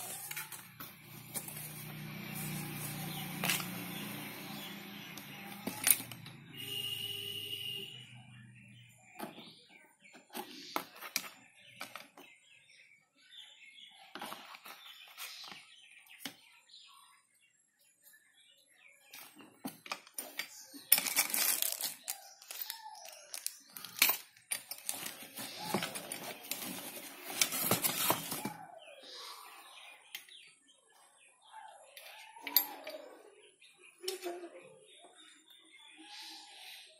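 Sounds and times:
plastic parts clicking: 19.6 - 28.6
cardboard box rustling: 24.8 - 28.6.

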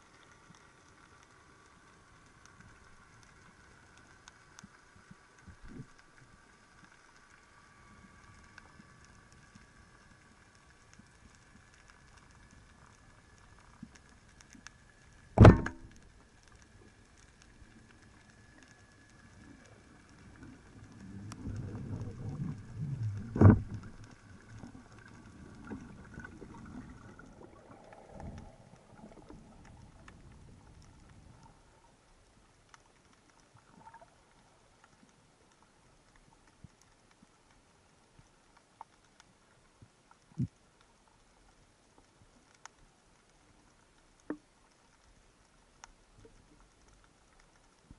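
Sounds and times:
speargun firing underwater: 15.4 - 15.9
scuffling rumble of movement in water: 19.3 - 31.8.

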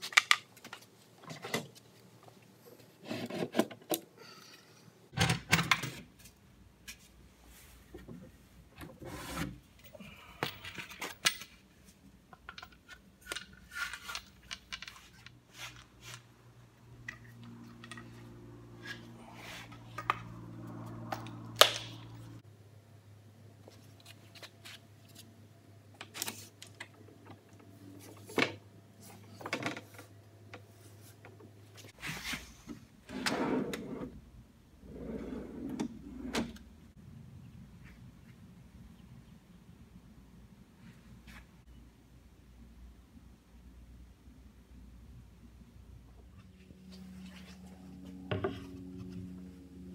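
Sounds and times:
drawer sliding on metal runners: 33.1 - 34.1, 34.9 - 36.7.

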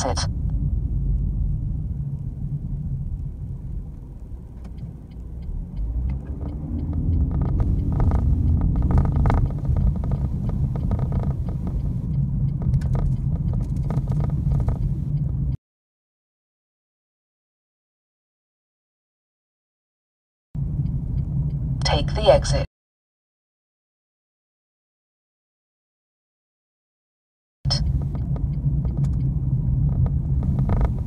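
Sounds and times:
car road and engine rumble: 0.0 - 15.6, 20.6 - 22.7, 27.7 - 31.0.

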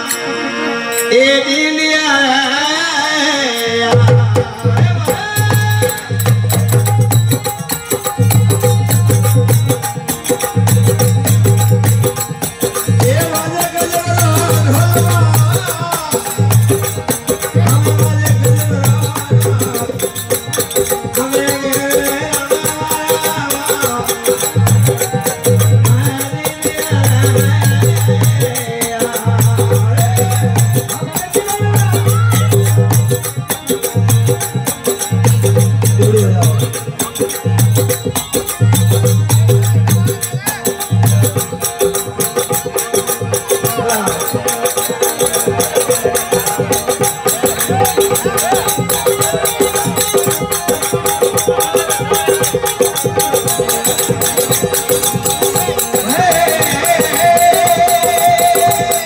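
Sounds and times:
harmonium: 0.0 - 59.0
man singing: 0.0 - 59.0
drum beat: 3.9 - 59.0.

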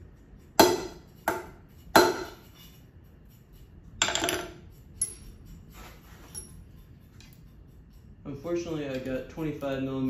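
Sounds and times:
hammer striking metal punch: 0.5 - 2.4
metal tools clattering: 4.0 - 7.5.

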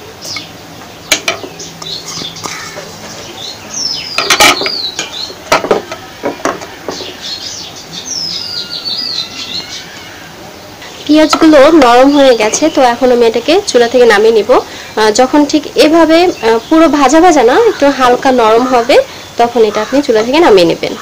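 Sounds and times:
bird whistling descending calls: 7.0 - 10.3.

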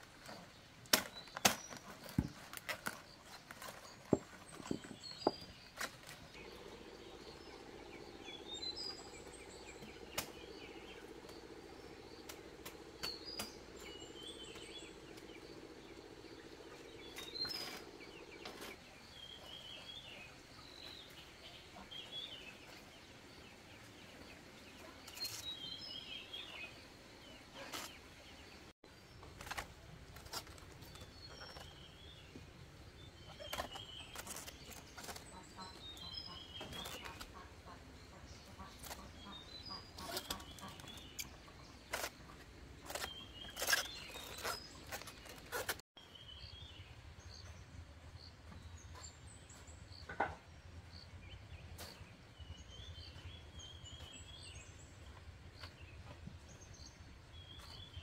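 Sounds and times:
small birds chirping: 0.0 - 58.0
leaf rustles: 29.0 - 37.6, 41.8 - 45.8.

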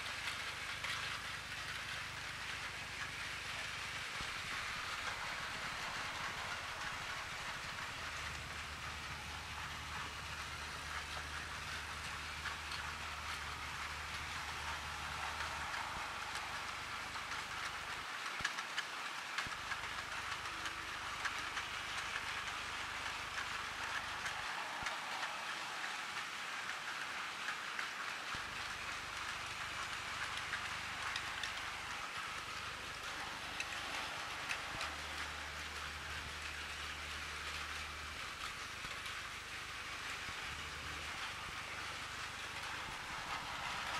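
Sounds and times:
toy train whirring rattle: 0.0 - 43.9.

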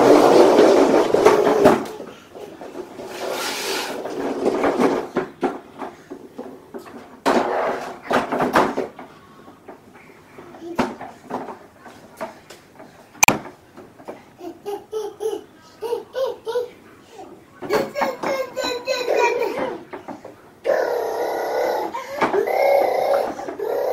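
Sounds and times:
plastic toy trucks rolling: 0.0 - 9.1, 10.4 - 12.4, 17.6 - 23.9.

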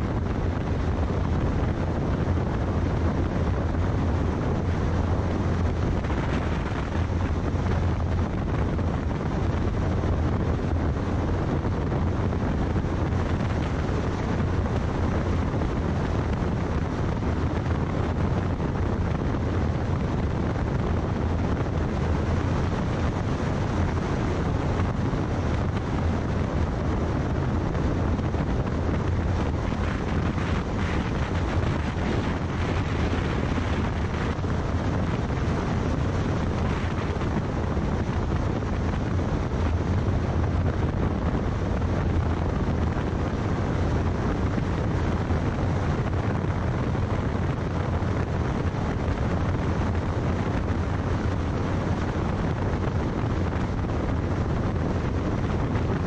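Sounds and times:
wind and road noise: 0.0 - 56.0
wind buffeting microphone: 0.0 - 56.0.

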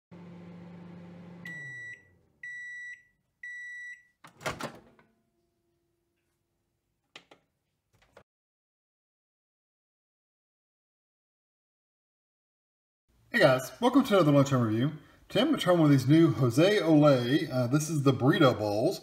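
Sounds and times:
microwave running hum: 0.1 - 2.8
microwave beeps: 1.2 - 4.2.

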